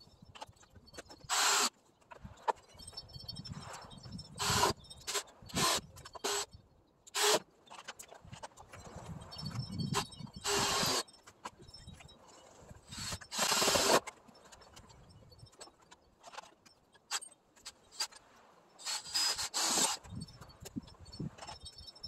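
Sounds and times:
cordless drill driving screws: 1.3 - 1.7, 4.4 - 6.5, 7.2 - 7.4, 10.4 - 11.0, 12.9 - 14.0, 18.8 - 20.0.

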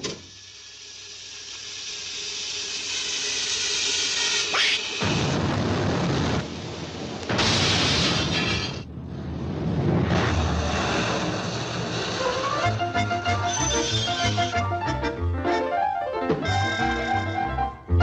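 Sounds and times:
cartoon hissing noise: 4.2 - 5.0, 12.2 - 14.6
rising whistle: 12.2 - 14.7
cartoon music score: 12.2 - 18.0.

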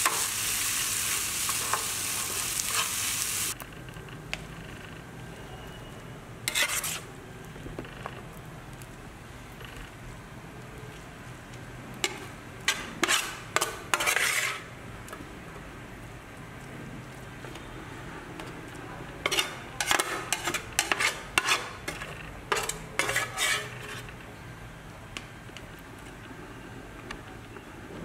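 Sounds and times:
spatula scraping a pan: 0.0 - 3.3, 6.4 - 7.1, 12.0 - 14.7, 19.2 - 24.2
faint frying sizzle: 0.0 - 3.6, 4.2 - 27.5.

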